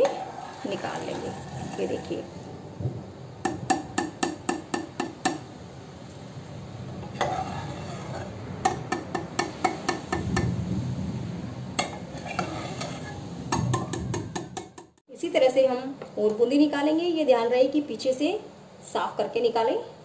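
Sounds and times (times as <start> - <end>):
stirring in syrup: 7.1 - 8.3.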